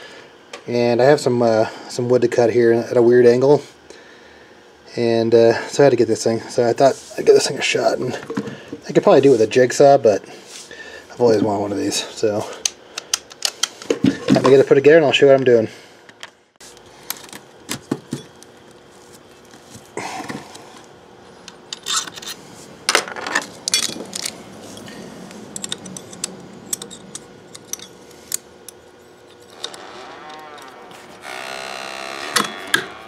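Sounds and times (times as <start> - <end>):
power tool parts clicking and rattling: 12.6 - 14.6, 21.5 - 24.9, 25.5 - 33.0.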